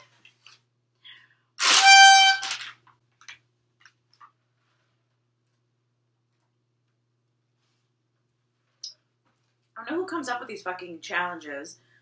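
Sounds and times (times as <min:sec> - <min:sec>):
party blower honk: 0:01.6 - 0:02.6.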